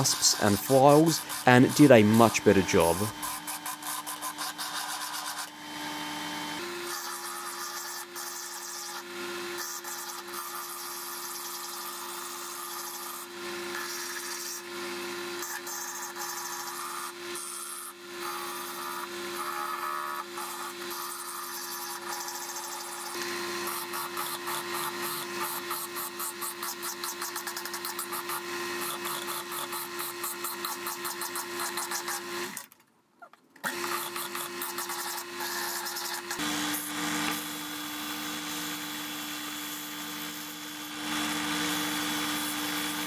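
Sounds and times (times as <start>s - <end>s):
file rasping on spinning wood: 0.0s - 5.6s, 15.4s - 32.5s, 33.7s - 36.4s
lathe motor humming: 0.0s - 8.0s.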